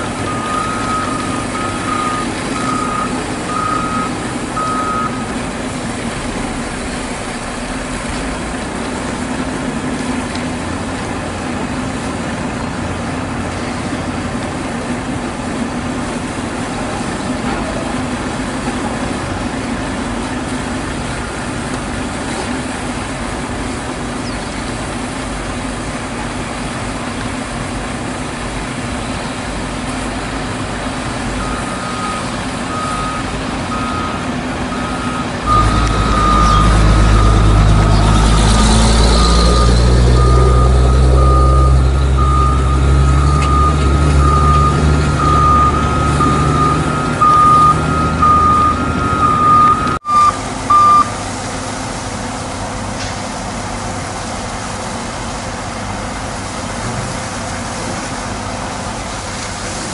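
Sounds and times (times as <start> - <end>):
diesel truck engine running: 0.0 - 59.9
reversing alarm beeping: 0.2 - 5.3, 31.4 - 51.2.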